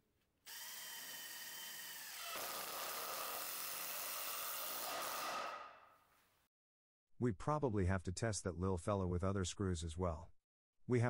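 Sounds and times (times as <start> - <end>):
impact driver driving screw: 0.5 - 5.7.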